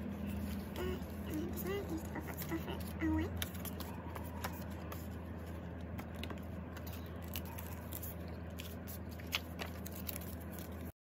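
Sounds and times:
steady low hum: 0.0s - 10.9s
plastic sleeves clicking and crinkling: 5.8s - 10.9s.

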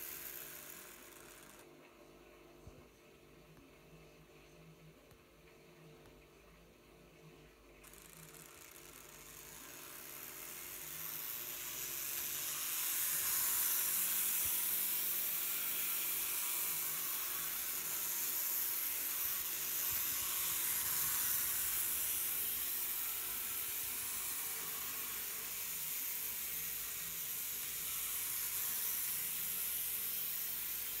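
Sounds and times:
model train motor hiss: 0.0s - 1.6s, 7.9s - 31.0s.

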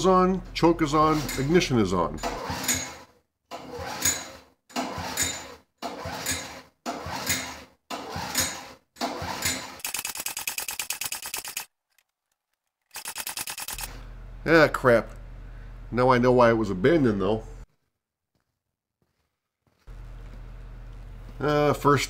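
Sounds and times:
recoil starter pulls: 1.0s - 14.0s
engine cranking over: 4.7s - 11.7s, 12.9s - 14.1s
fast even ticking: 9.8s - 11.7s, 12.9s - 13.9s.

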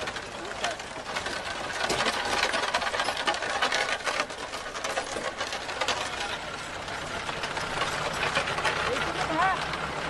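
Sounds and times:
cart wheels rattling: 0.0s - 10.0s.

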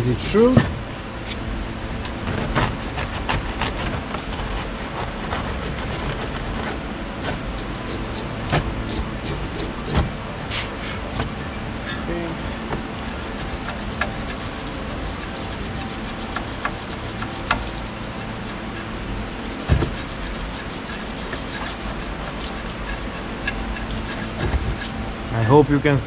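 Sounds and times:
brush scrubbing metal: 2.3s - 10.0s, 12.8s - 25.1s.

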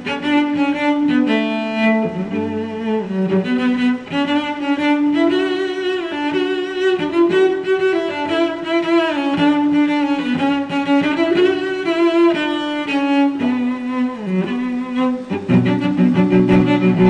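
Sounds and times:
bowed strings slow melody: 0.0s - 17.0s.

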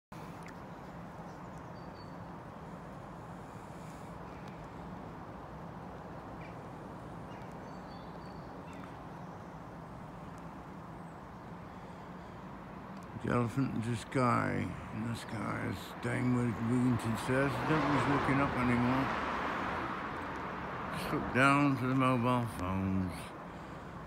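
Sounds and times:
faint bird chirps: 0.2s - 4.9s, 6.0s - 16.7s.

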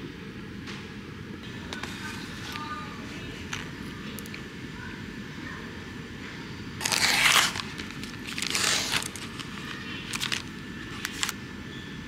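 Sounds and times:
plastic film crinkling: 6.8s - 11.4s.

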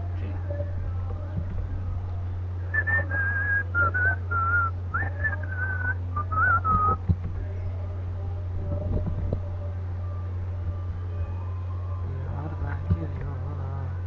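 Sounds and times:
steady low hum: 0.0s - 14.0s
person whistling a tune: 2.7s - 7.0s.

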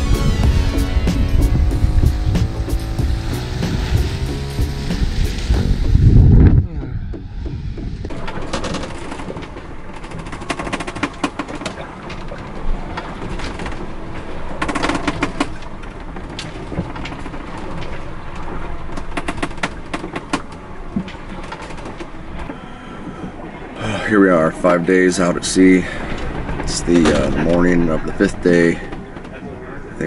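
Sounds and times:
steady rushing noise: 0.0s - 22.6s, 23.3s - 30.0s
wooden cabin creaking: 0.0s - 23.8s.

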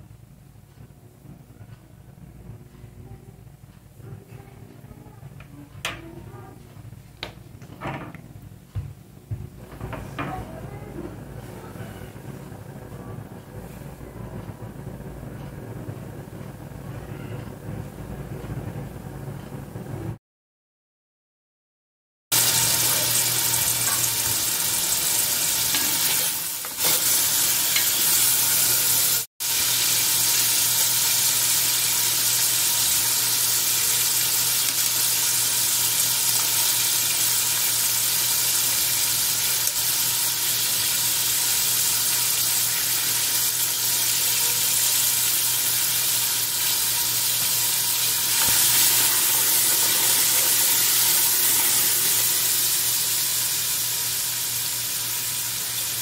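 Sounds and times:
faint low hum: 0.1s - 20.2s
vegetables sizzling in hot oil: 22.4s - 56.0s.

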